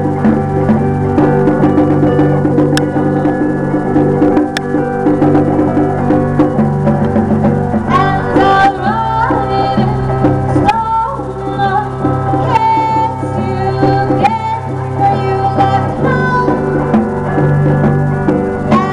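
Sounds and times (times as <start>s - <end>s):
electric guitar: 0.0s - 18.9s
live band playing: 0.0s - 18.9s
sliding high melody line: 0.0s - 18.9s.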